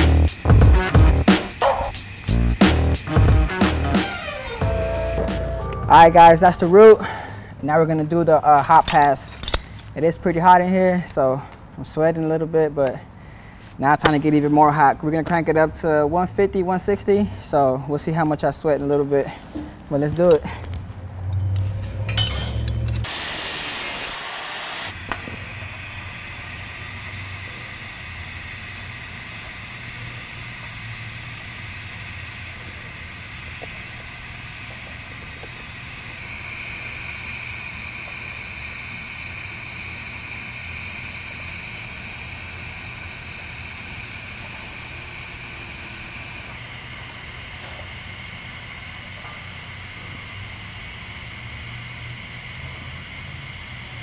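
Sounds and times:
grinder running: 0.0s - 5.6s, 22.6s - 54.0s
welding arc hissing: 0.0s - 7.1s, 22.9s - 54.0s.

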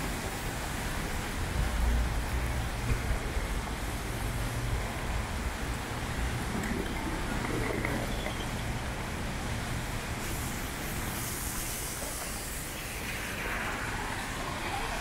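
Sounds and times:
heavy rain hissing: 3.4s - 15.0s.

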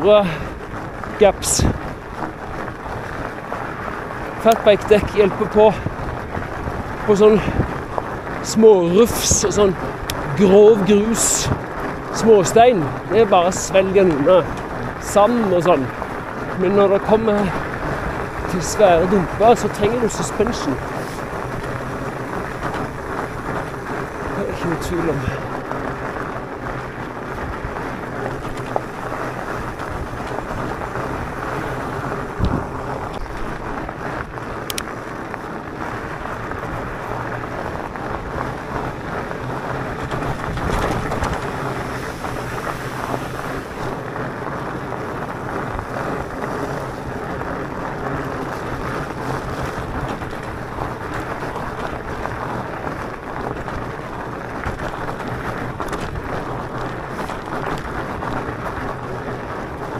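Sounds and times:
tyres crunching on gravel: 0.0s - 59.9s
wind rushing over microphone: 0.0s - 59.9s
bike knocking over bump: 38.2s - 58.9s.

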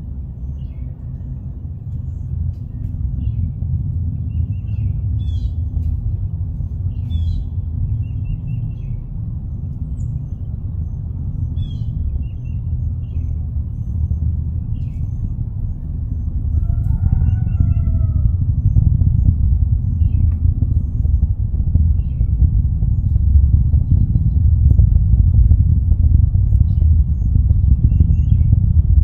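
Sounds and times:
rocket rumble: 0.0s - 29.0s
small birds chirping: 0.2s - 29.0s
rooster crowing: 16.4s - 18.4s.

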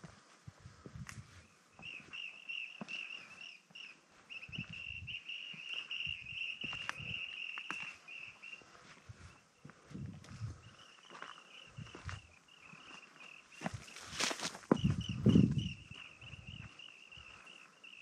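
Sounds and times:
footsteps crunching on rocky ground: 0.0s - 17.8s
bird trilling: 1.8s - 8.6s.

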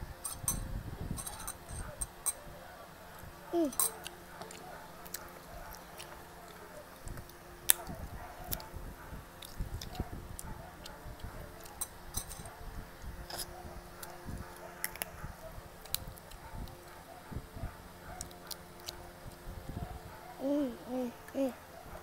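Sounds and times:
chewing: 3.2s - 12.6s, 13.3s - 17.0s, 18.1s - 19.4s.

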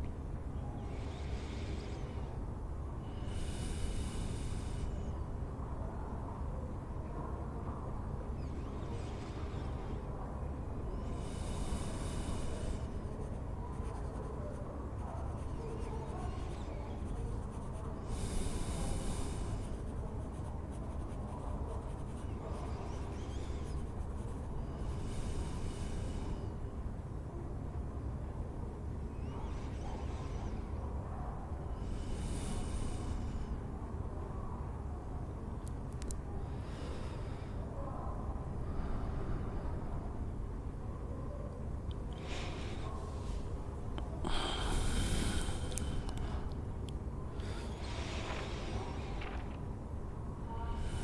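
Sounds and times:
low room rumble: 0.0s - 51.0s
quill scratching on parchment: 13.2s - 24.5s.

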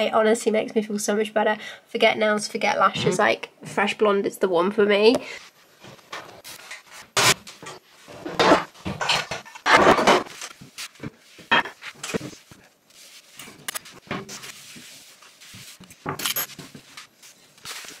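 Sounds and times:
cloth wiping a worktop: 10.5s - 18.0s
knocks and clinks: 16.1s - 16.6s.

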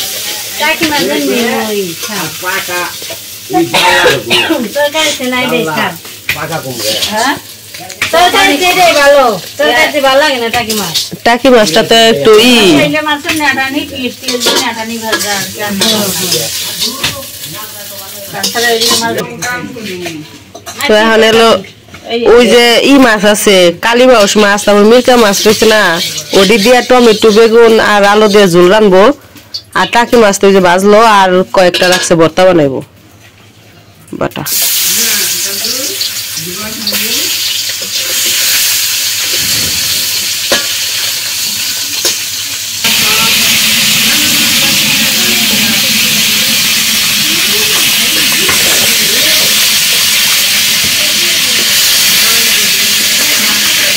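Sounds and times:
oil sizzling: 0.0s - 21.7s, 22.3s - 31.1s, 33.2s - 53.9s
metal spatula scraping a pan: 25.2s - 27.7s.

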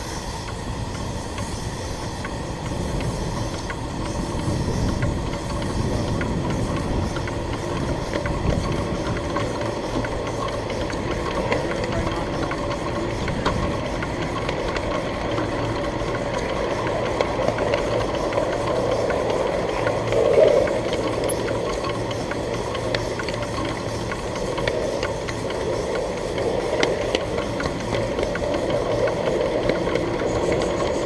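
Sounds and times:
miniature train mechanical drone: 0.0s - 31.0s.

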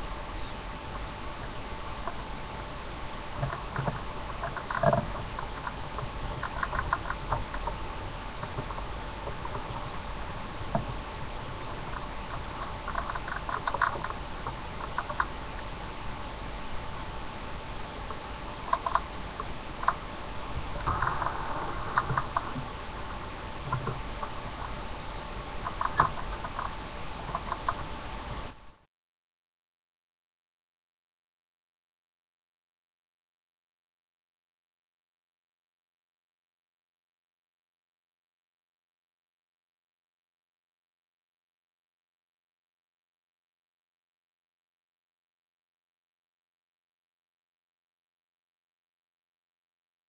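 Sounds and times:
faint steady hum: 0.0s - 28.9s
rat claws pattering and scratching: 3.4s - 7.8s, 11.7s - 16.0s, 18.6s - 20.1s, 25.6s - 27.9s.

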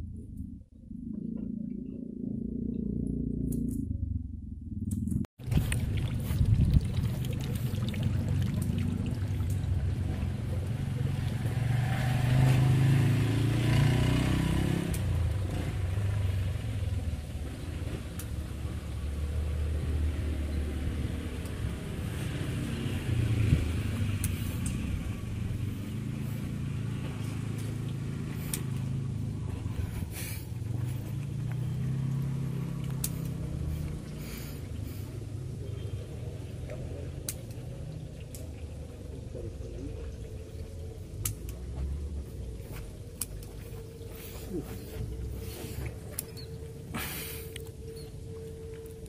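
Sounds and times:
low engine hum: 0.0s - 49.0s
vehicle engines passing close by: 5.2s - 49.0s.

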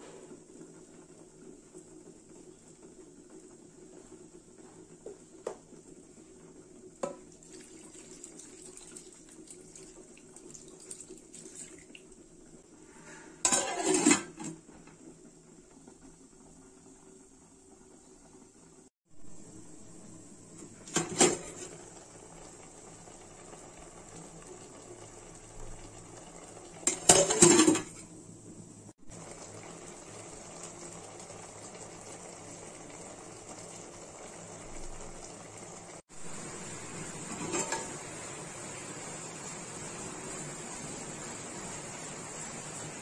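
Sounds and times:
pot simmering hiss: 0.0s - 43.0s
pot lid clanking against pot: 13.5s - 14.5s, 26.9s - 28.0s, 37.3s - 38.0s.

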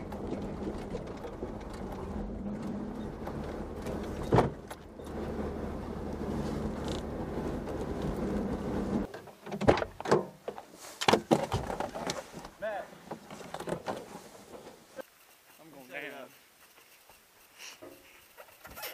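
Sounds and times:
vehicle engine running: 0.0s - 9.1s.

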